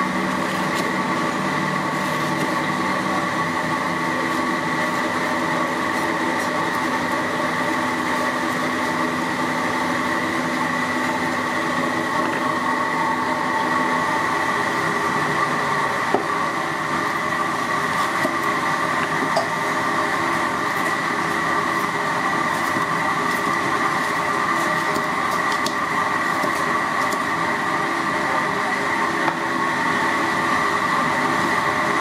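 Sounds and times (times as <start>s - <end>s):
loud mechanical drone: 0.0s - 32.0s.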